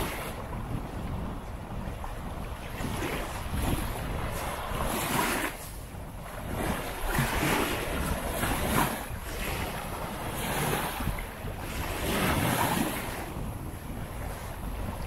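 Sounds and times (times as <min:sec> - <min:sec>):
waves breaking on a beach: 0:00.0 - 0:15.0
wind buffeting microphone: 0:00.0 - 0:15.0.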